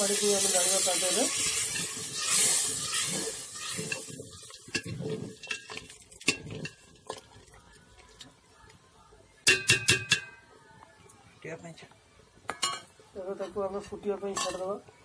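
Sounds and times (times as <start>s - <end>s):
hot pot sizzling hiss: 0.0s - 10.9s
metal ladle knocking in brass pot: 9.4s - 10.4s.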